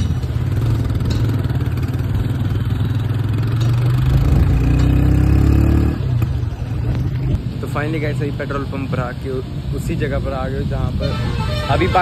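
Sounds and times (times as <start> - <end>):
motorcycle engine accelerating: 0.0 - 6.4
tyres on wet road: 0.0 - 12.0.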